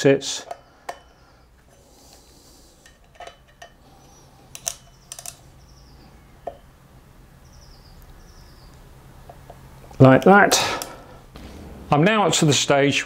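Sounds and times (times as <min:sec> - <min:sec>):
metal tool clicking on screws: 0:02.8 - 0:05.4.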